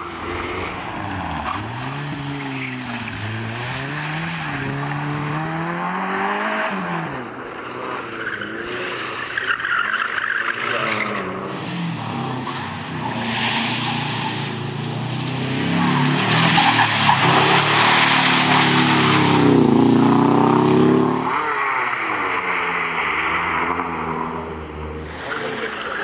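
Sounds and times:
car engines revving: 0.0s - 26.0s.

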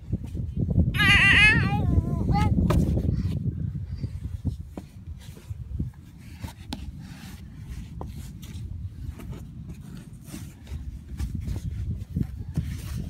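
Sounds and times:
wind rumbling on microphone: 0.0s - 13.0s
taps and scrapes on plastic: 4.7s - 13.0s.

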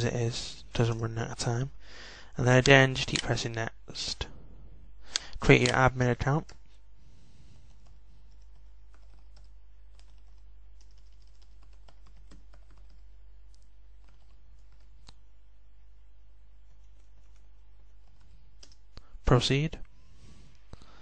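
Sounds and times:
steady low hum: 0.0s - 21.0s
keyboard typing: 5.1s - 6.6s, 7.7s - 15.2s, 16.6s - 19.0s.

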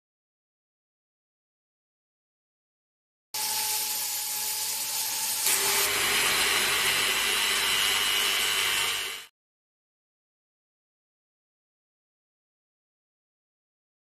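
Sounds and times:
grinding stone grinding steel: 3.4s - 9.3s
rotary tool motor whine: 3.4s - 9.3s.

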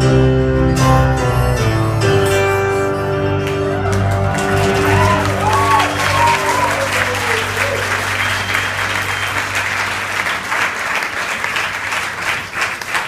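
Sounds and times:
audience applauding: 3.3s - 13.0s.

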